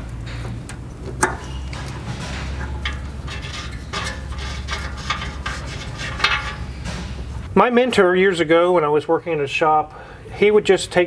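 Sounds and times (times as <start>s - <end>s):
metallic clicks and scrapes: 0.0s - 7.5s
steady low rumble: 0.0s - 9.5s.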